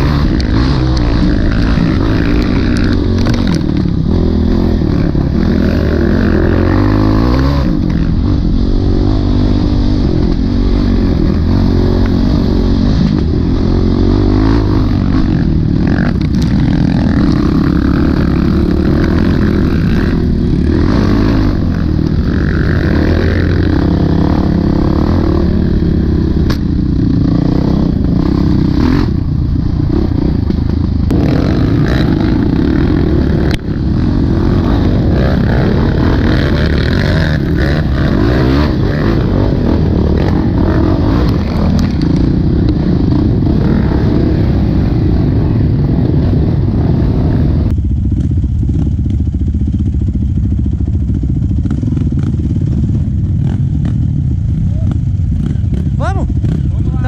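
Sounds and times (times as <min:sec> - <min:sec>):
dirt bike engine running: 0:00.0 - 0:57.0.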